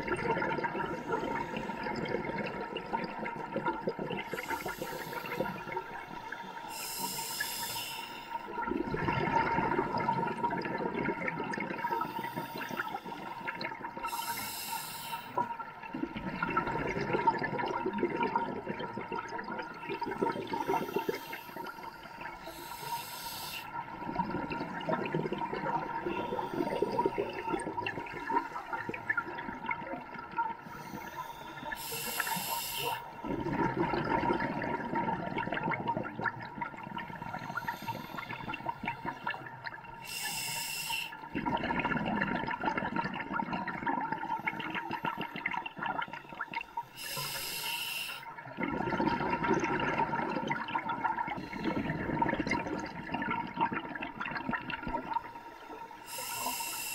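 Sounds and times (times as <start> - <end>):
exhaled bubbles underwater: 0.0 - 56.9
regulator inhalation hiss: 4.3 - 8.5, 11.8 - 15.4, 20.4 - 23.8, 30.7 - 33.2, 37.4 - 39.3, 40.0 - 41.2, 46.3 - 48.3, 55.3 - 56.9.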